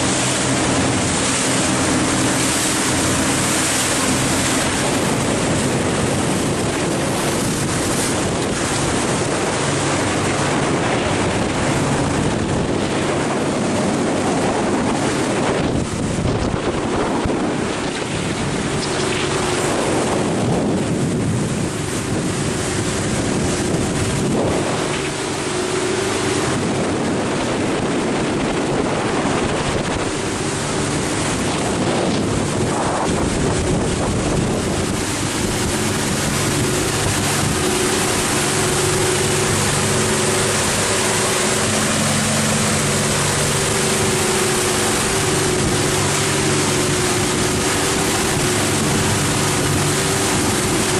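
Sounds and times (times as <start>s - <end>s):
boat engine drone: 0.0s - 50.9s
water rushing along hull: 0.0s - 50.9s
wind buffeting microphone: 0.0s - 50.9s.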